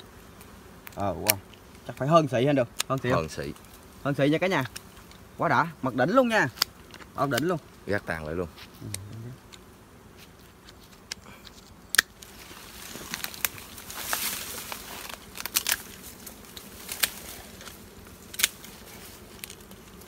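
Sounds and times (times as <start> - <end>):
bees buzzing: 0.0 - 20.0
twigs snapping: 0.4 - 2.1, 10.5 - 20.0
dry brush rustling: 1.0 - 20.0.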